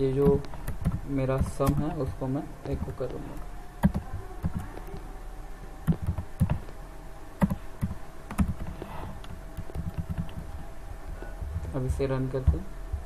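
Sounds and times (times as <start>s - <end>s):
faint electrical hum: 0.0s - 13.0s
keyboard typing: 0.1s - 3.2s, 3.8s - 5.0s, 5.8s - 6.8s, 7.4s - 10.6s.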